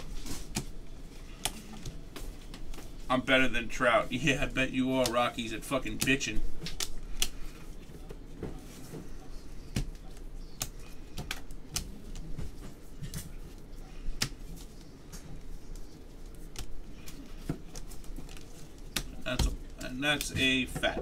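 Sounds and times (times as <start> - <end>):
cards clicking and snapping: 5.8 - 7.5, 14.0 - 20.4.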